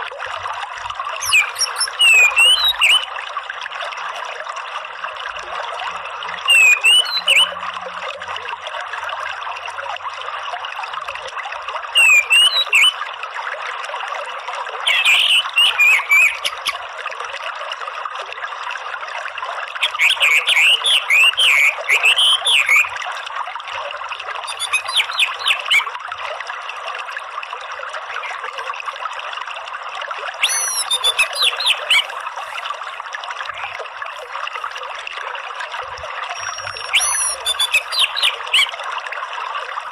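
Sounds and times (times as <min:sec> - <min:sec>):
running stream: 0:00.0 - 0:39.9
bird twittering song: 0:01.2 - 0:03.1, 0:06.5 - 0:07.5, 0:12.0 - 0:13.0, 0:14.8 - 0:16.8, 0:19.8 - 0:22.9, 0:24.4 - 0:25.9, 0:30.4 - 0:32.2, 0:36.3 - 0:38.7.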